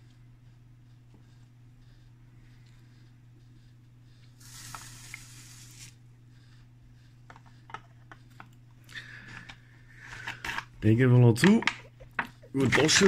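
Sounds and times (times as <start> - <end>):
salt trickling through a funnel: 4.4 - 5.9.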